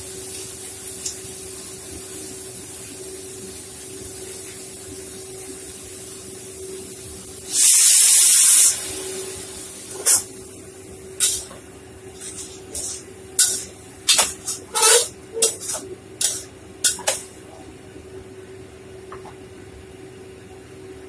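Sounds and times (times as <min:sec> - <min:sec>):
faint frying sizzle: 0:00.0 - 0:17.6
steady low hum: 0:08.8 - 0:21.0
metal spatula scraping wok: 0:11.2 - 0:11.6, 0:12.2 - 0:17.4.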